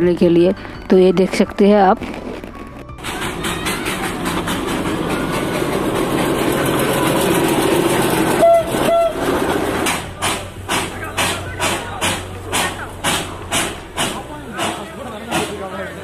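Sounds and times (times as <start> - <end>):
diesel locomotive running past: 3.0 - 16.0
train horn toots: 8.3 - 9.4.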